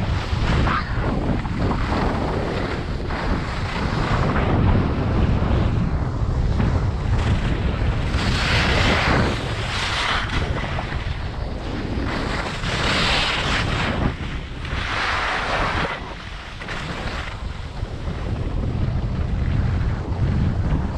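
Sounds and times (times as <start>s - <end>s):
wind buffeting microphone: 0.0s - 20.9s
skis scraping packed snow: 6.4s - 19.1s.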